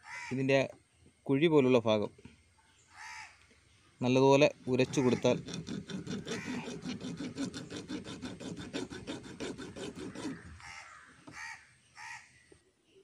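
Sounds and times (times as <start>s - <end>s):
short bird calls: 2.6s - 4.0s
seed rasping on steel file: 4.7s - 10.6s.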